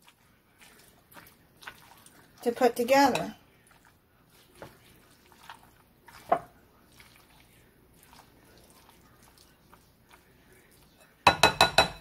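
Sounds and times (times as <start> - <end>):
spoon stirring wet pasta: 0.0 - 12.0
spoon tapping bowl: 11.2 - 12.0.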